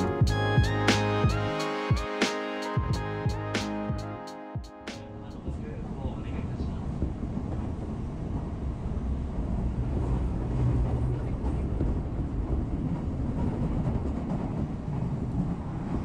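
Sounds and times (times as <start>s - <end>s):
train rumble and rail noise: 5.1s - 16.0s.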